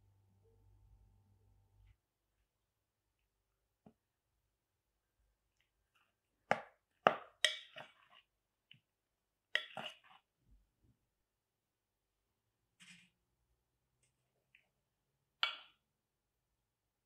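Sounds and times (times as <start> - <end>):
plastic spoon tapping glass bowl: 6.5 - 8.0, 15.4 - 15.8.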